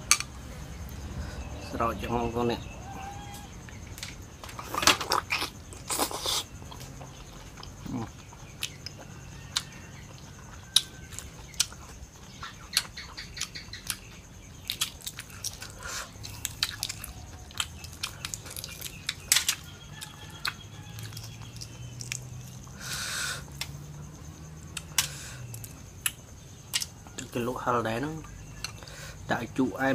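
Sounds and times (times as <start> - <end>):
wet chewing: 4.5 - 22.8.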